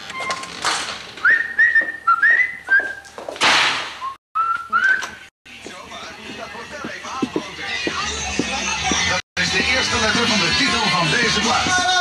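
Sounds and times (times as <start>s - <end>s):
person whistling a tune: 1.3s - 3.0s, 4.0s - 5.2s.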